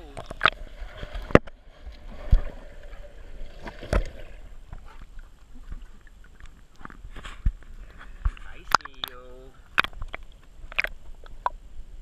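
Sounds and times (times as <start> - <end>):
water sloshing around camera housing: 3.6 - 11.6.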